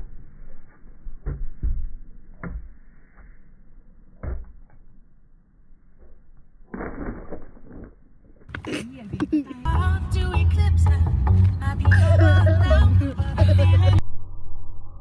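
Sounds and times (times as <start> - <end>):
stretched-out low sound: 13.9 - 15.0.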